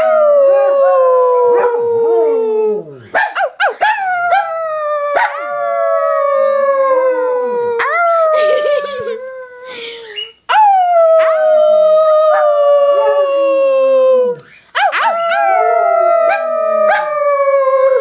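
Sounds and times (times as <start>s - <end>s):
dogs howling: 0.0s - 3.0s, 10.6s - 18.0s.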